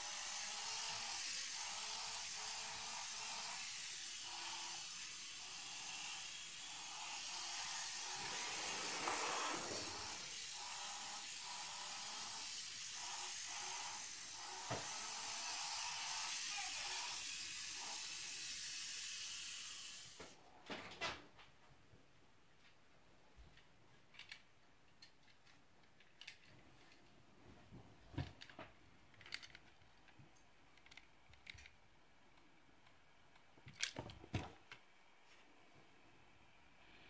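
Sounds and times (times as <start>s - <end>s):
toy car electric motor whirring: 0.0s - 20.4s, 24.2s - 24.4s, 26.0s - 26.5s, 29.2s - 29.8s, 30.8s - 31.8s, 33.7s - 34.8s.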